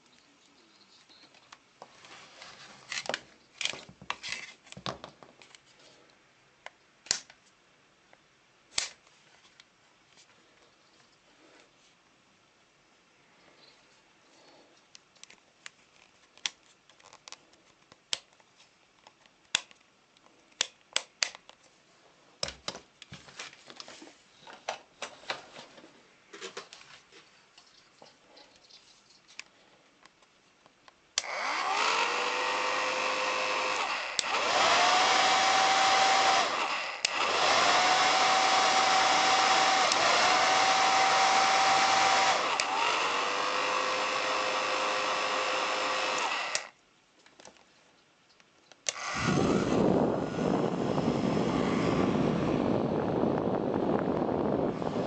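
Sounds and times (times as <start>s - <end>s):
hair dryer whining: 31.2s - 46.7s, 48.9s - 53.1s.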